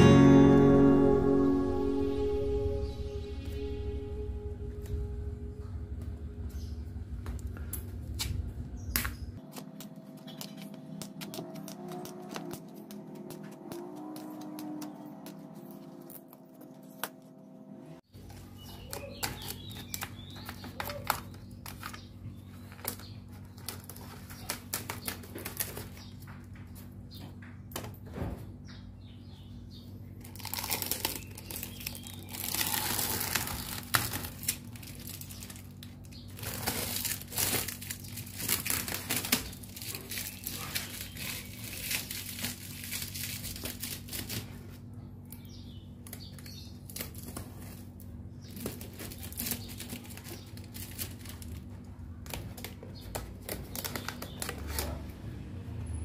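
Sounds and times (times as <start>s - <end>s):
faint low hum: 0.0s - 13.6s
material crinkling and rustling: 30.2s - 44.9s.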